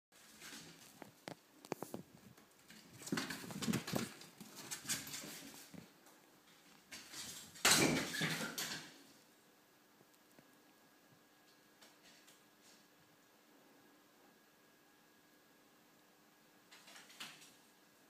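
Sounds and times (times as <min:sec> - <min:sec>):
cat scrambling on hard floor: 0:00.2 - 0:05.9, 0:16.7 - 0:17.6.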